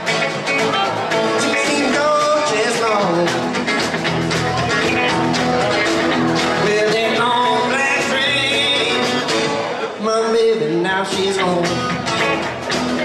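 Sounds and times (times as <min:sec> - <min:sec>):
steady drum beat: 0:00.0 - 0:09.6
rockabilly band playing: 0:00.0 - 0:13.0.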